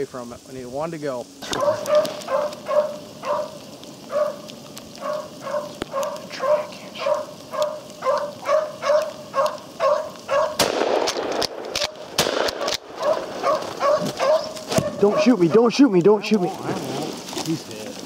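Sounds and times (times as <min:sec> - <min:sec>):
rustling crackling in cover: 0:00.0 - 0:18.0
dog baying barks: 0:01.4 - 0:10.6, 0:12.6 - 0:15.6.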